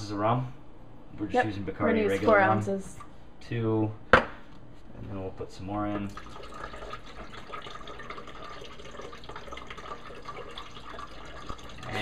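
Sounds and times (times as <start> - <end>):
liquid pouring into a blender jar: 5.9 - 12.0.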